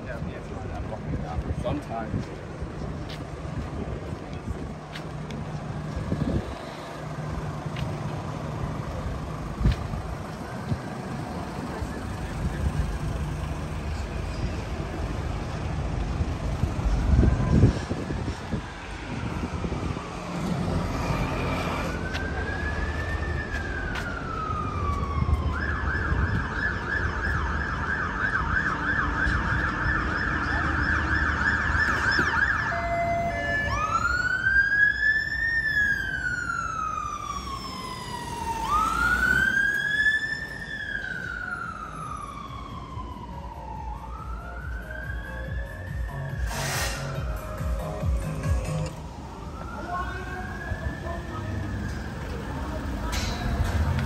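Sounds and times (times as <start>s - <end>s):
road traffic rumble: 0.0s - 54.0s
emergency siren wailing and yelping: 16.9s - 53.0s.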